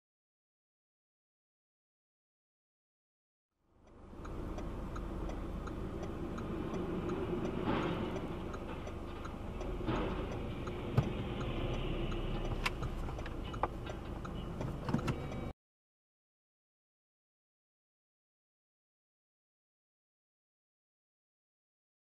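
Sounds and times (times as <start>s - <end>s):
car interior road rumble: 3.7s - 15.5s
light even ticking: 3.8s - 15.5s.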